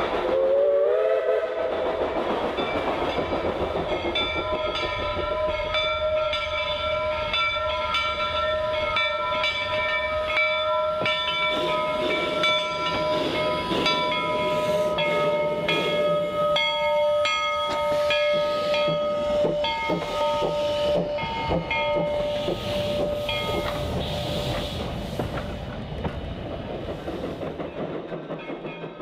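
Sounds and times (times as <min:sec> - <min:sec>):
rail noise: 0:00.0 - 0:29.0
rush of steam: 0:00.0 - 0:29.0
steam whistle chord: 0:00.3 - 0:01.7.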